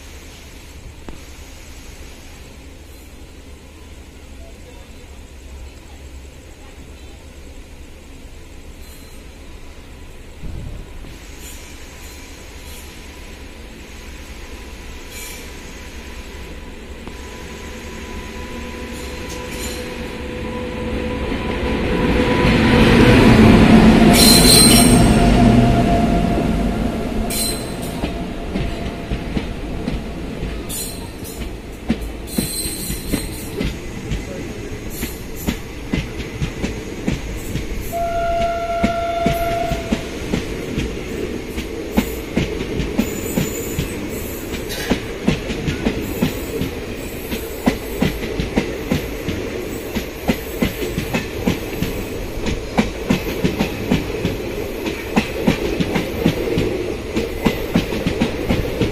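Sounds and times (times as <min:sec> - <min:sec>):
train rushing past: 0:00.0 - 0:58.9
train horn: 0:17.1 - 0:29.1, 0:37.8 - 0:40.3.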